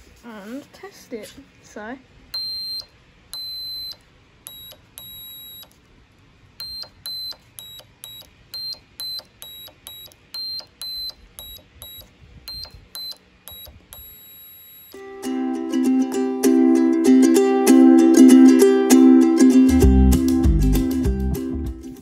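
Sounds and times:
electronic buzzer beeping: 2.4s - 5.8s, 6.6s - 15.0s.

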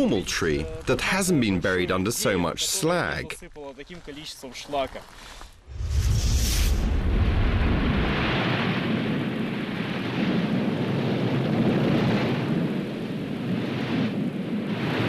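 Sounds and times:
volcanic eruption rumbling: 5.6s - 15.0s.

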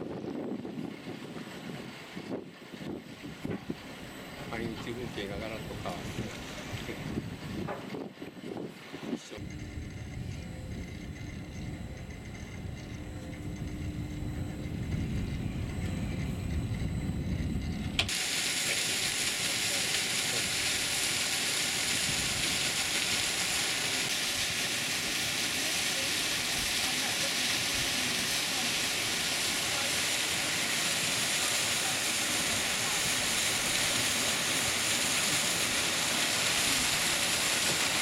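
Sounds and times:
low rumble: 9.4s - 18.1s.

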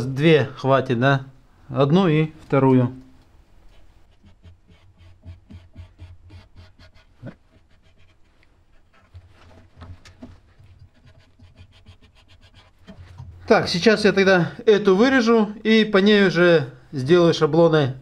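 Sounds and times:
marker scratching on steel: 3.7s - 9.2s, 10.6s - 13.3s.

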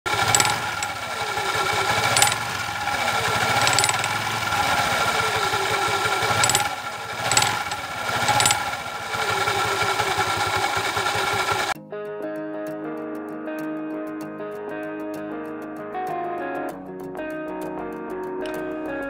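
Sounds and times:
scooter engine running: 0.1s - 11.8s
sharp ticks from clutch: 0.1s - 11.8s.

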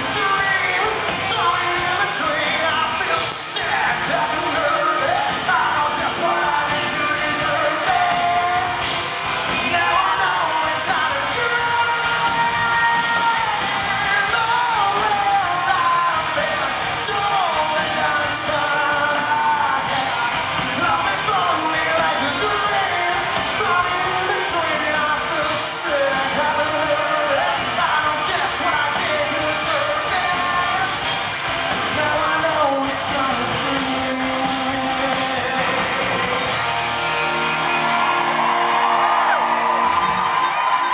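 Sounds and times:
man singing lead: 0.0s - 36.8s
drums: 0.0s - 40.9s
electric guitars: 0.0s - 40.9s.

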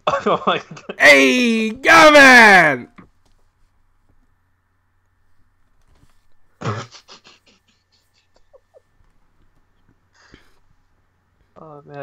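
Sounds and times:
faint giggles: 6.6s - 9.1s.

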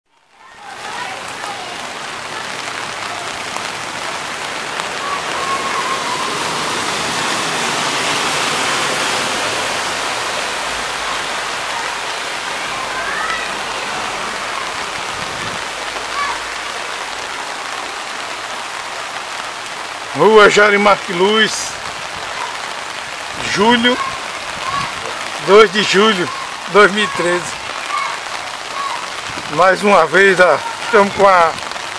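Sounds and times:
rain falling: 0.1s - 31.9s
floodwater running: 0.3s - 31.9s.

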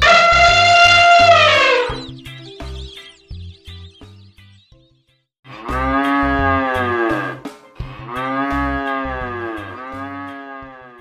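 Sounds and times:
cattle mooing: 5.6s - 7.4s, 8.0s - 11.0s.

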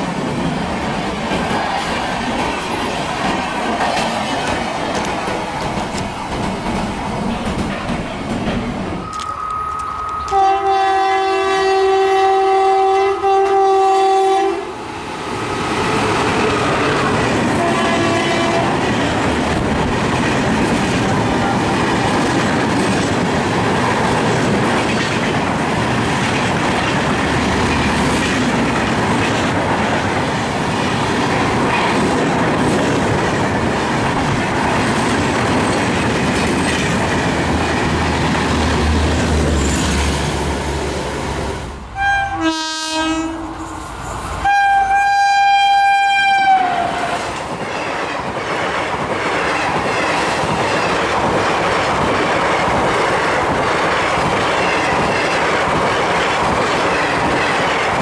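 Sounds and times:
train wheels rushing on rail: 0.0s - 58.0s
train horn blasts: 9.0s - 14.7s, 17.6s - 18.9s, 42.0s - 43.7s, 44.4s - 47.2s.

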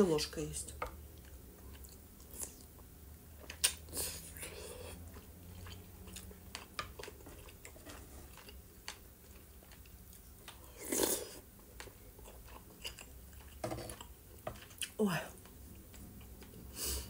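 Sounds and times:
wet chewing and mouth clicks: 1.1s - 16.6s.

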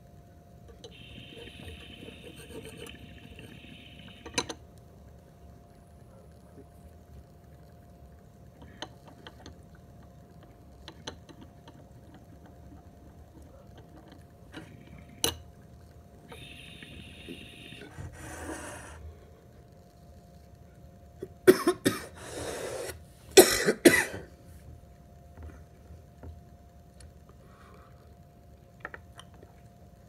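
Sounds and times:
water gurgling in a bong: 0.9s - 19.6s
breathy hiss: 16.3s - 19.3s, 21.9s - 23.4s.

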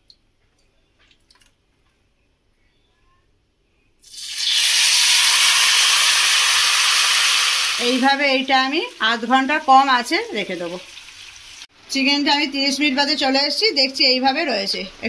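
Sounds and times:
oil sizzling: 4.0s - 11.7s.

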